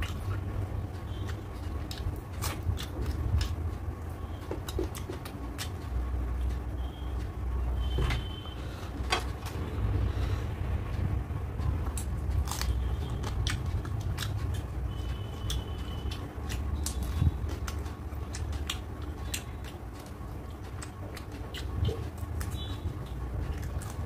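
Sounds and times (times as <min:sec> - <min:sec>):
person chewing food: 0:00.0 - 0:07.4, 0:08.3 - 0:24.0
steady low rumble: 0:00.0 - 0:24.0.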